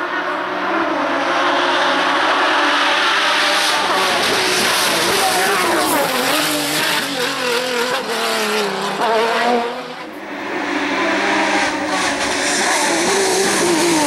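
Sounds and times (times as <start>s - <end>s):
race car engine at high revs: 0.0s - 14.0s.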